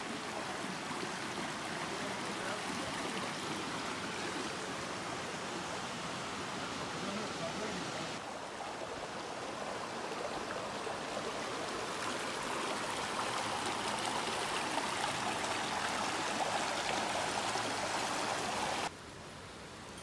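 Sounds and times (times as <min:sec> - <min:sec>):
stream running over rocks: 0:00.0 - 0:20.0.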